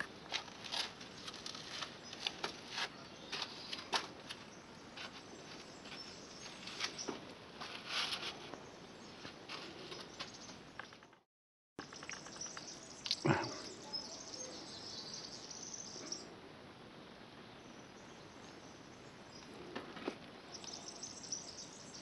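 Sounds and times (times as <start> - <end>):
faint bird chirps: 11.8 - 16.4.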